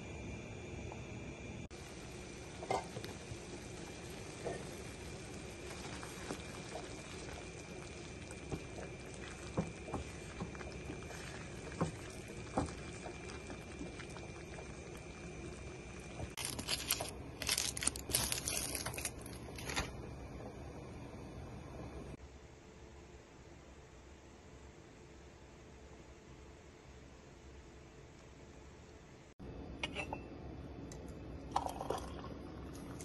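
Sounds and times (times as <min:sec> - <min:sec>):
rice mixture bubbling in pan: 0:01.7 - 0:17.1.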